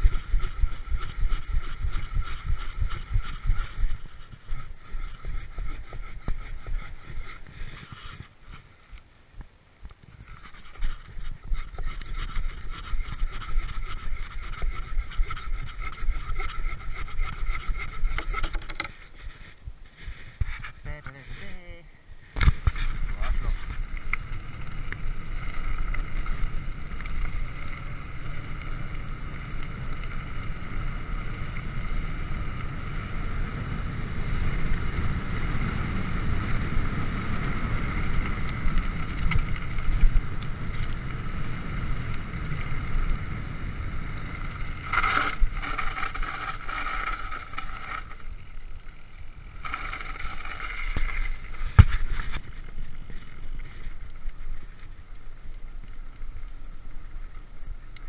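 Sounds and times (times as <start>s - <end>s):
high whir from bike: 0.0s - 20.8s, 21.4s - 58.0s
wind rushing over microphone: 0.0s - 54.8s
tyres rumbling over dirt: 33.5s - 54.0s.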